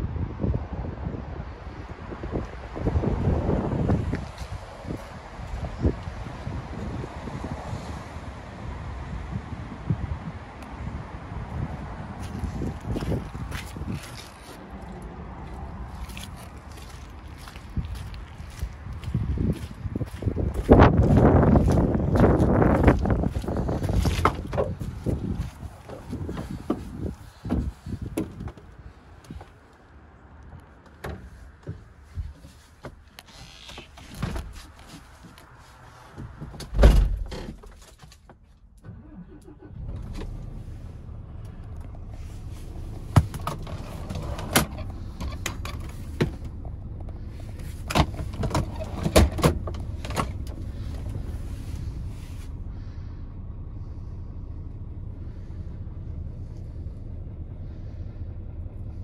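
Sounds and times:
diesel truck engine idling: 0:10.8 - 0:29.2, 0:38.9 - 0:59.0.

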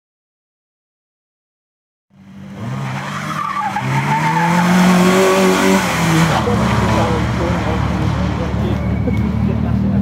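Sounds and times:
car engine revving hard: 0:02.3 - 0:09.6
tyres squealing: 0:02.7 - 0:09.6.

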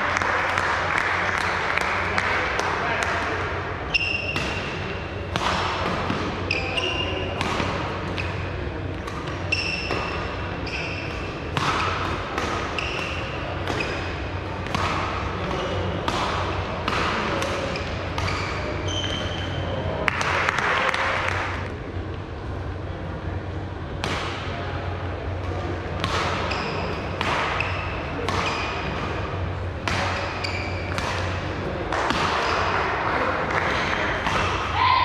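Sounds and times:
background murmur in hall: 0:00.0 - 0:35.0
shoe squeaks on court floor: 0:03.9 - 0:04.4, 0:06.5 - 0:07.3, 0:09.4 - 0:11.3, 0:12.7 - 0:14.1, 0:17.7 - 0:19.7, 0:26.4 - 0:27.0, 0:27.6 - 0:28.8, 0:30.2 - 0:31.0
racket striking shuttlecock: 0:11.1 - 0:19.5, 0:29.8 - 0:32.8.

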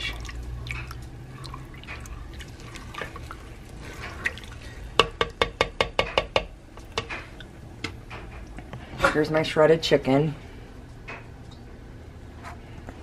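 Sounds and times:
wet sloshing: 0:00.0 - 0:05.1
spoon stirring thick sauce: 0:00.0 - 0:05.6.

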